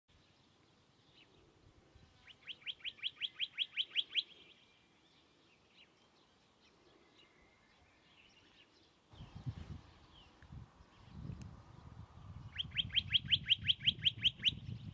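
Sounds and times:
faint bird calls: 1.0 - 11.1
bird singing a whistled trill: 2.3 - 4.8, 12.4 - 14.9.

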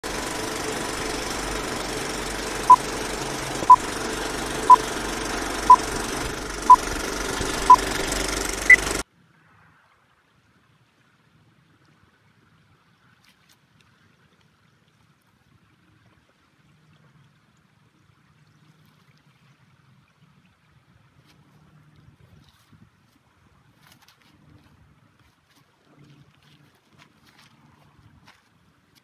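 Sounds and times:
film projector whirring rattle: 0.0 - 9.0
short beeps: 7.6 - 7.8, 8.6 - 9.0.

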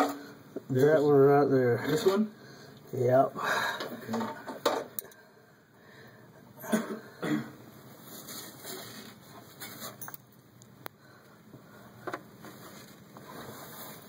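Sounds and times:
person coughing: 6.6 - 7.6.

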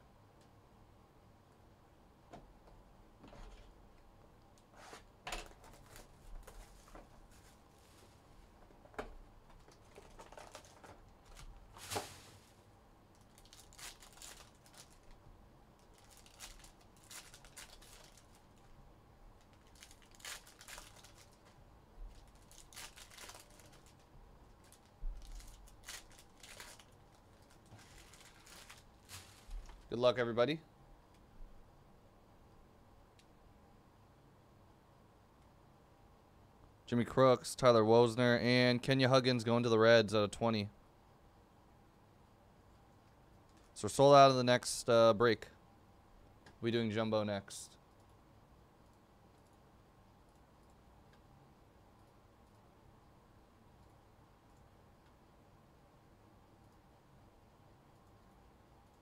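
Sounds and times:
foil wrappers tearing and crinkling: 9.8 - 12.4, 13.2 - 15.2, 15.8 - 18.6, 19.5 - 29.9.

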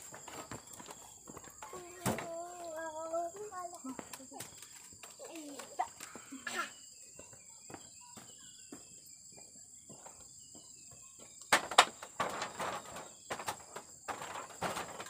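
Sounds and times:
footsteps on dirt: 0.0 - 11.4
insects trilling: 0.0 - 15.0.

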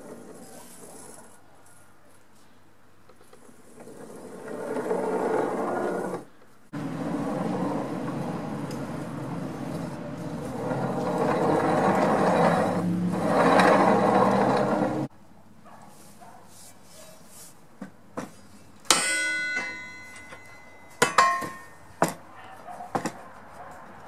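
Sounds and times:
steel scraping against steel rail: 3.4 - 15.1.

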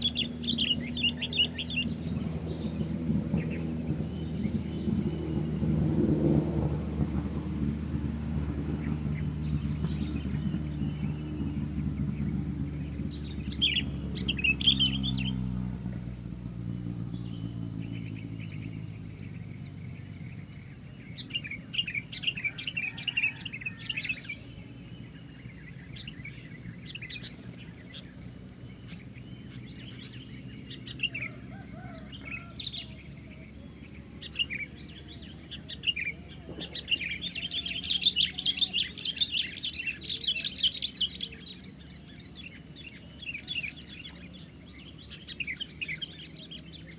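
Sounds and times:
bulbul singing: 0.0 - 46.9.

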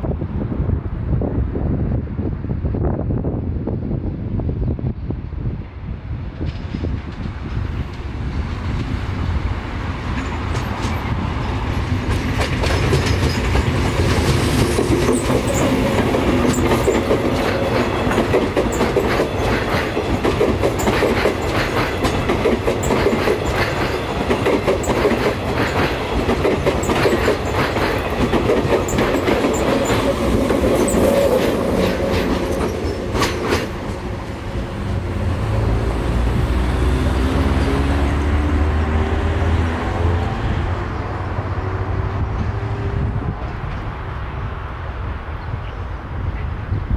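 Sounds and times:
approaching train whine: 5.8 - 45.6
electric train wheels clattering: 6.3 - 38.3.

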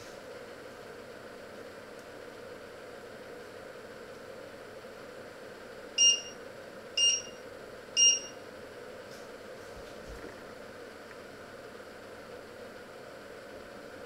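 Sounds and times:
cooktop touch-control beeps: 6.0 - 6.4, 7.0 - 7.4, 8.0 - 8.4.

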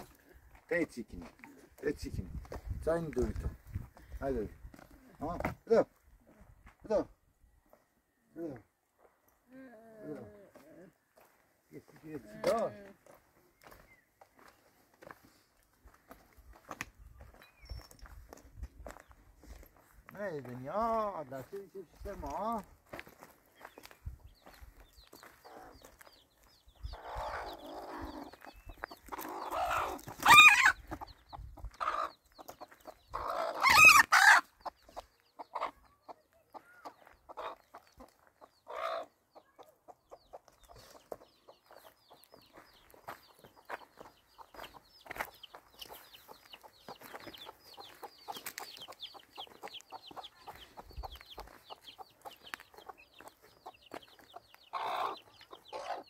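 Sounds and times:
chickens clucking: 0.0 - 6.5, 18.0 - 56.0.

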